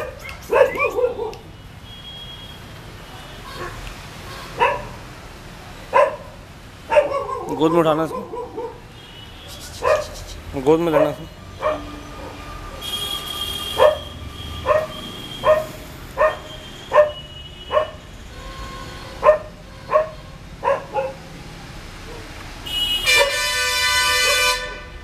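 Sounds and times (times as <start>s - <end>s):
puppy yelping barks: 0.0s - 1.5s, 3.6s - 3.8s, 4.6s - 5.0s, 5.9s - 8.9s, 9.7s - 12.4s, 13.8s - 18.0s, 19.2s - 21.2s
vehicle horn honk: 11.4s - 15.6s, 16.4s - 20.4s, 22.6s - 25.0s.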